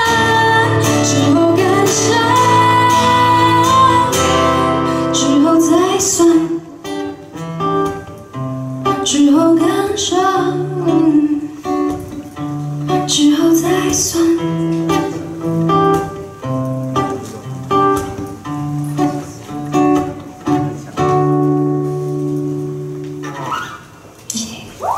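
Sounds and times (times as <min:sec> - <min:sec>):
woman singing: 0:00.0 - 0:06.9, 0:08.9 - 0:11.9, 0:12.9 - 0:15.1
acoustic guitar: 0:00.0 - 0:24.9.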